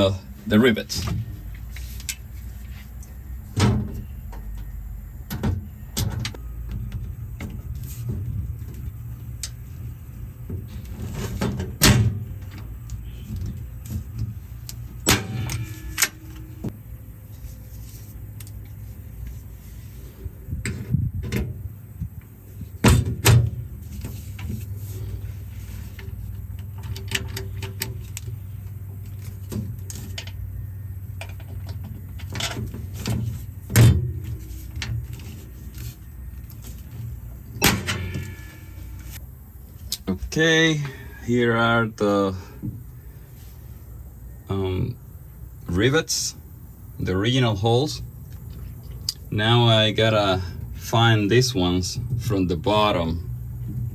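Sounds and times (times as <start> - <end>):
low hum: 1.1 - 40.3.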